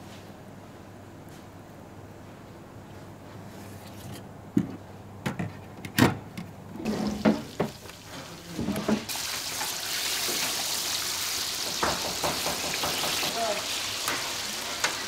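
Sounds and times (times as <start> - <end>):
deep-fryer oil sizzling: 6.8 - 15.0.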